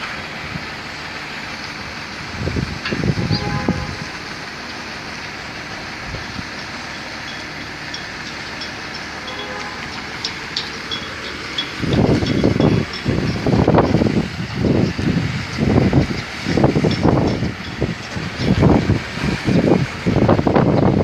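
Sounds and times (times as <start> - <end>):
distant diesel truck running: 0.0 - 21.0
wind buffeting microphone: 2.2 - 4.3, 10.6 - 21.0.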